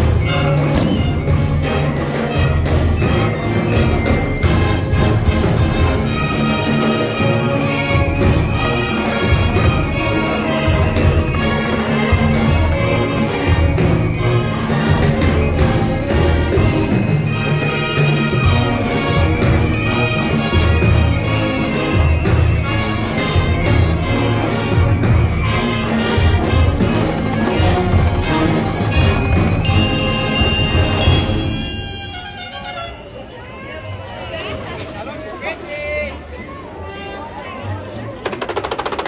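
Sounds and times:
band playing a song: 0.0 - 33.3.

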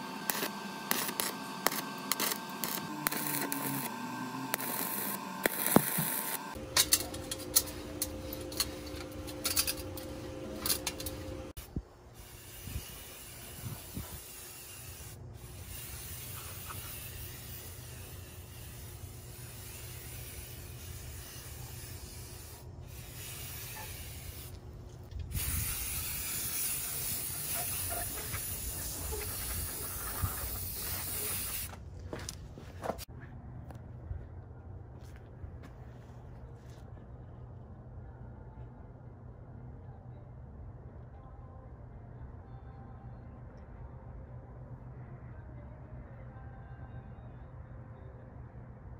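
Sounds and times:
welding arc crackling: 0.0 - 11.6
steady hum: 0.0 - 12.0.

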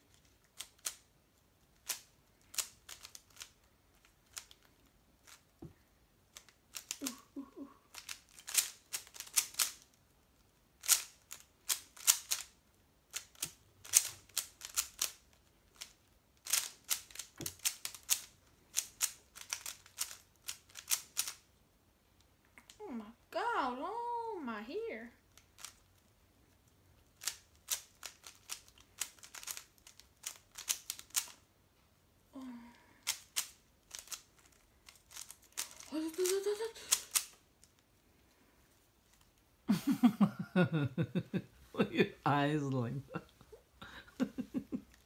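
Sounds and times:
plastic puzzle cube clicking: 0.1 - 5.5, 6.3 - 7.2, 7.9 - 10.0, 10.8 - 21.5, 25.3 - 26.0, 27.0 - 31.4, 33.0 - 37.8.

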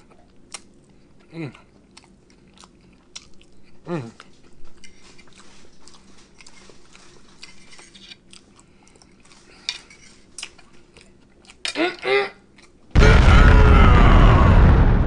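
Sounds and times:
wet chewing and lip smacks: 0.0 - 9.7, 10.3 - 11.6, 12.5 - 12.9
person humming: 3.9 - 4.2.

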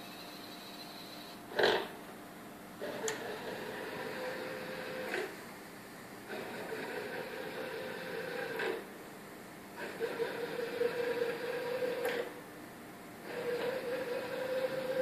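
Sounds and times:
machine motors whirring: 2.8 - 5.3, 6.3 - 8.8, 9.8 - 12.3, 13.2 - 15.0.

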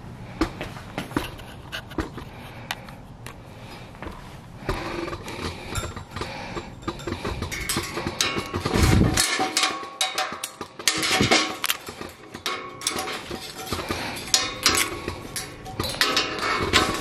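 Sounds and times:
wire clinking against rebar: 4.7 - 17.0.

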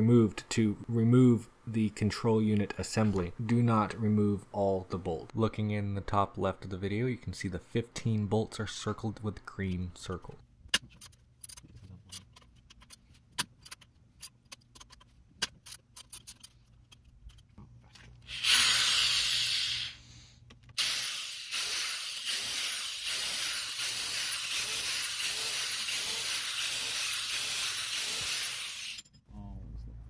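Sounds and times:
power drill spinning: 20.8 - 29.0.

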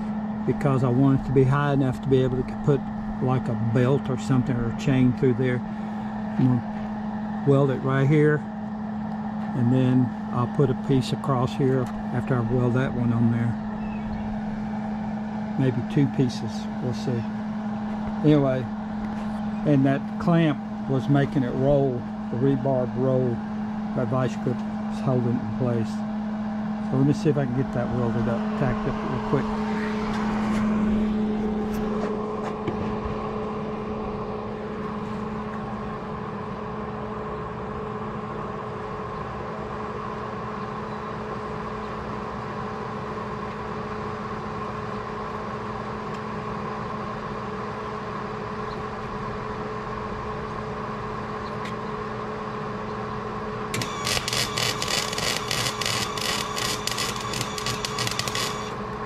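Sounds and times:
steady mechanical hum: 0.0 - 59.0
welder arc crackling: 53.8 - 58.9.

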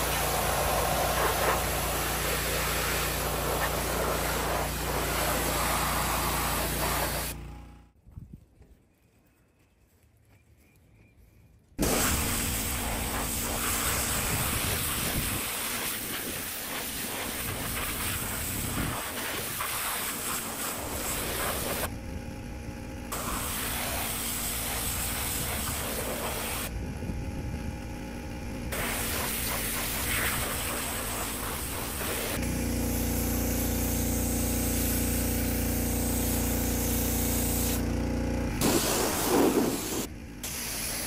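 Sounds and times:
pressure washer spray hissing: 0.0 - 7.4, 11.8 - 21.9, 23.1 - 26.7, 28.7 - 37.8, 38.6 - 41.0
pressure washer motor running: 0.0 - 7.8, 11.8 - 41.0.

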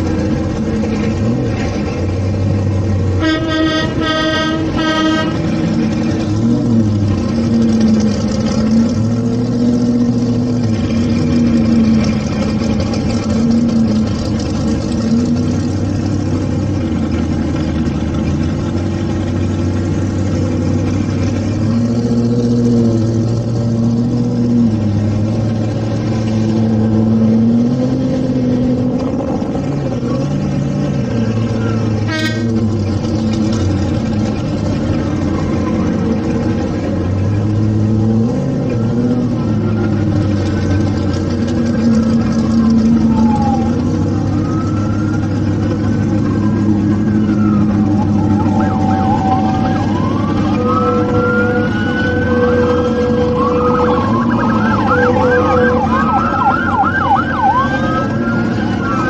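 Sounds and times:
car engines running: 0.0 - 59.0
electronic siren wailing: 35.0 - 36.8, 41.8 - 59.0.

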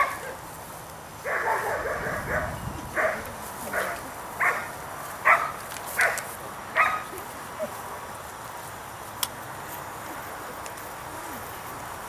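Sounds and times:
dog barking: 0.0 - 0.4, 1.2 - 6.2, 6.8 - 7.1.

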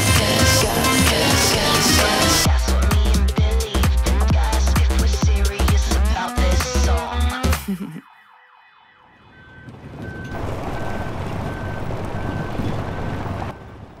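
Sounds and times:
music: 0.0 - 7.8
reversing alarm beeps: 8.1 - 13.7
construction vehicle engine: 9.4 - 14.0.

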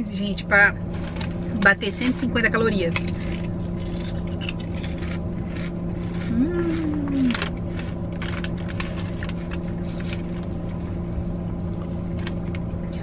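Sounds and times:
steady car interior hum: 0.0 - 13.0
chips crunching while chewed: 3.0 - 10.9
foil bag crinkling: 5.6 - 10.7.

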